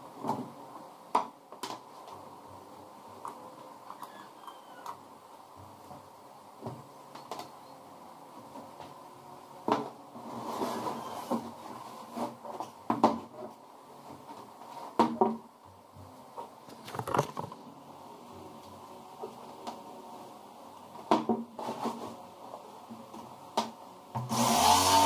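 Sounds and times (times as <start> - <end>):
wood and tools knocking: 16.8 - 17.6.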